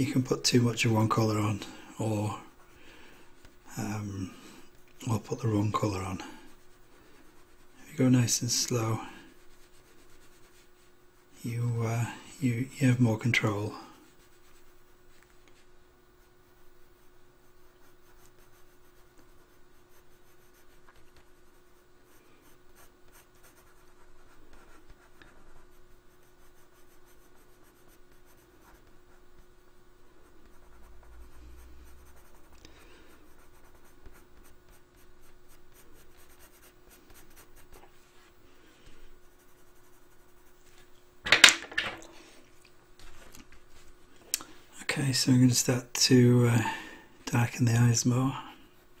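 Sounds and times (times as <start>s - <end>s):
faint steady hum: 0.0s - 49.0s
pencil scratching on paper: 4.4s - 8.2s, 9.1s - 11.3s, 13.7s - 38.1s, 39.2s - 40.7s.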